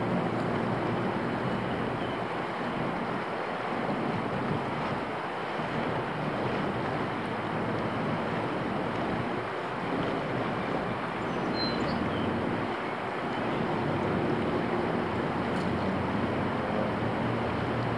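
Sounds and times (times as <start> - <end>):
steady rushing background noise: 0.0 - 17.9
faint high chirp: 11.3 - 12.3.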